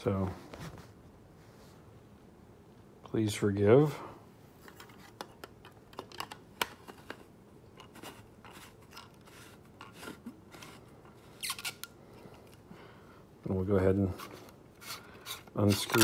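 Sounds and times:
hands handling a plastic flashlight: 4.6 - 12.7, 14.2 - 16.0.

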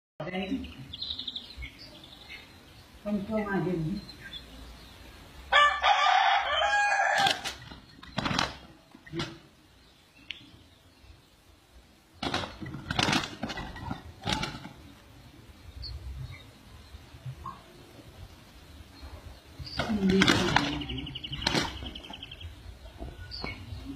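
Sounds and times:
rooster crowing: 5.5 - 7.5
wings flapping and scuffling: 7.2 - 9.5, 12.2 - 15.2, 19.4 - 23.7.

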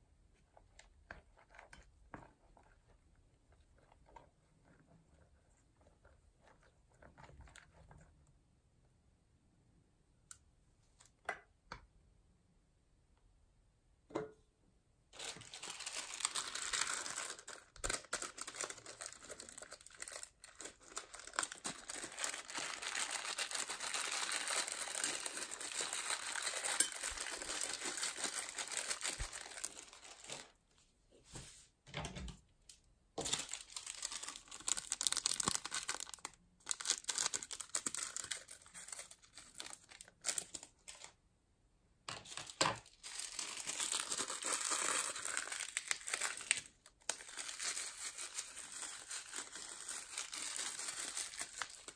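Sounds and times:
plastic bag crinkling: 15.2 - 30.6, 33.2 - 41.2, 42.2 - 51.9.

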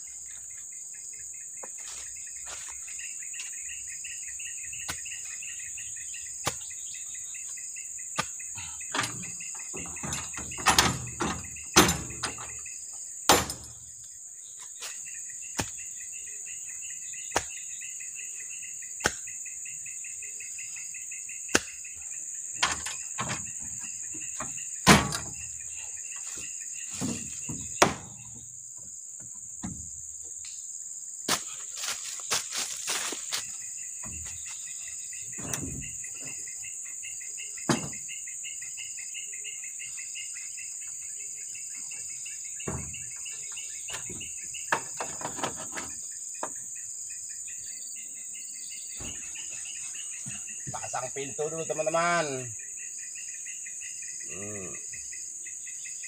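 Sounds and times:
insects chirring: 0.0 - 56.0
plywood boards knocking: 27.0 - 28.4.

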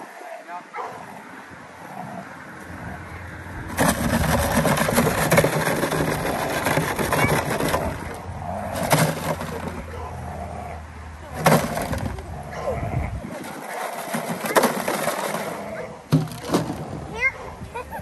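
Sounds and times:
plastic jug and cardboard crushed: 3.7 - 9.8, 11.4 - 12.2, 13.3 - 17.0.

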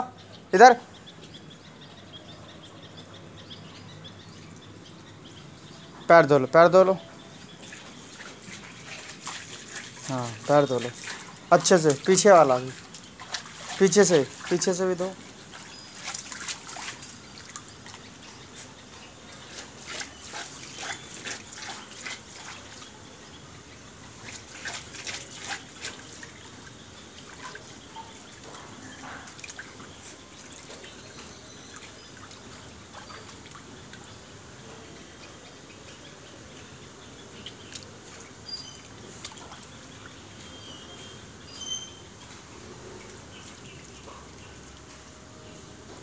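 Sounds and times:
water trickling on tiled floor: 1.0 - 6.0, 6.6 - 45.9
small water splashes: 7.5 - 34.6, 36.6 - 45.1.

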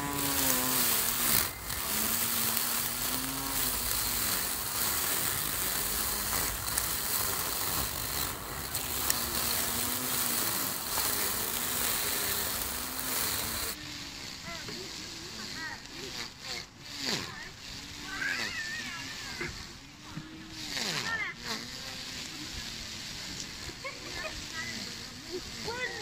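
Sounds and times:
string trimmer cutting grass: 0.0 - 26.0.

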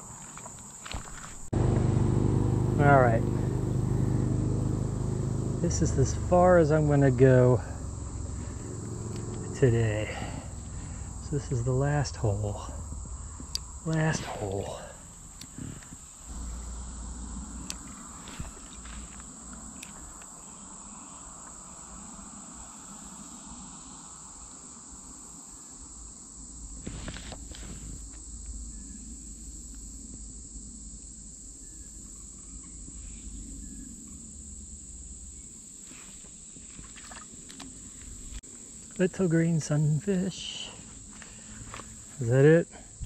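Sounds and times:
low rumble: 1.5 - 19.8
insects shrilling: 2.1 - 43.0.

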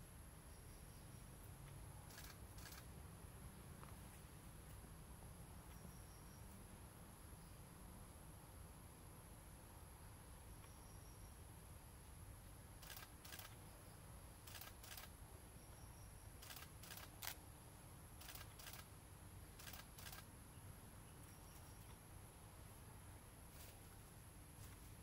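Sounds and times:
paired ticks: 12.8 - 13.6.

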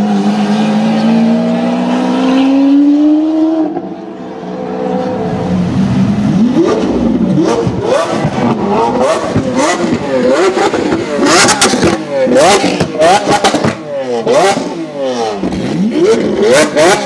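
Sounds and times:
car engine accelerating hard: 0.0 - 17.0
supercar engine revving in blips: 6.2 - 17.0.

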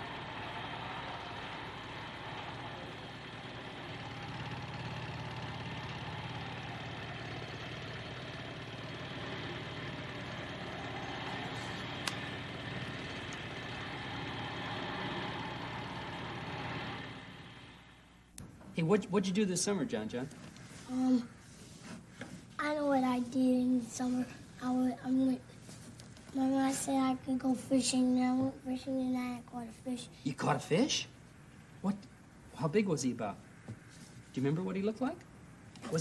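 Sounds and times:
construction machinery drone: 0.0 - 18.1.

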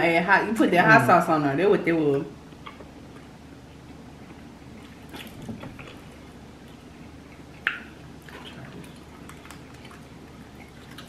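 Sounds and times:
chewing and mouth smacking: 2.5 - 11.0.

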